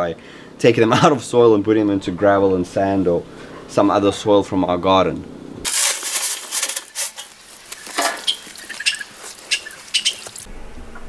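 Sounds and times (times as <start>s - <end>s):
digging into wet gravel: 5.7s - 10.5s.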